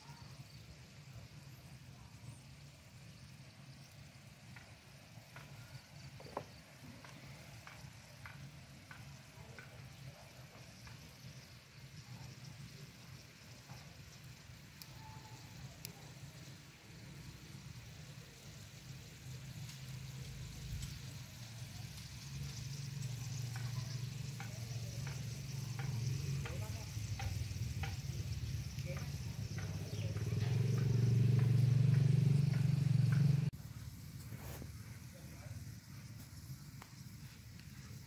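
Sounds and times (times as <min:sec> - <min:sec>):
fat sizzling and crackling: 0:00.0 - 0:38.0
low steady rumble: 0:20.2 - 0:37.1.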